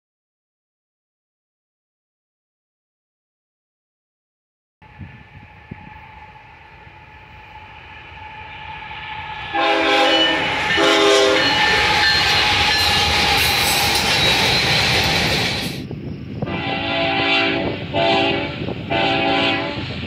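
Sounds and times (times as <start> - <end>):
train air horn blasts: 4.8 - 14.0, 16.4 - 20.0
freight train rumbling: 4.8 - 20.0.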